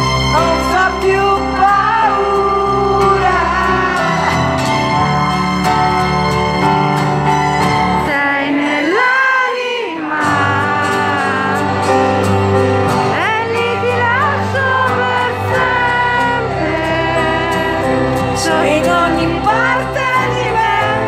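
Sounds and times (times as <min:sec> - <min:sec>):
acoustic guitar: 0:00.0 - 0:21.0
piano: 0:00.0 - 0:21.0
woman singing: 0:00.3 - 0:04.4, 0:08.0 - 0:12.2, 0:13.0 - 0:21.0.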